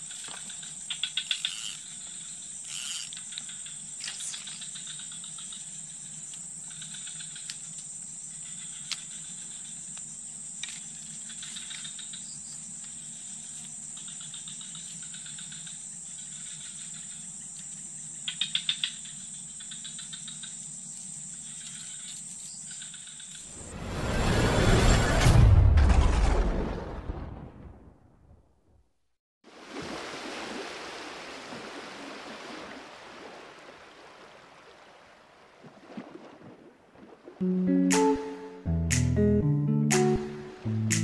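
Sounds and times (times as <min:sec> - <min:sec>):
insects calling with pulsing trill: 0:00.0 - 0:23.6.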